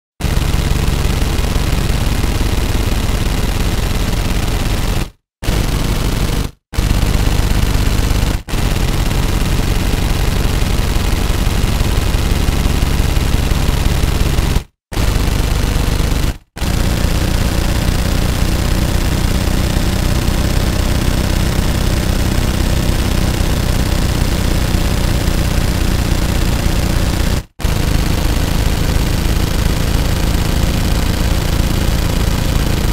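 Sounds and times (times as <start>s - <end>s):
machine gun firing bursts: 0.2s - 32.9s.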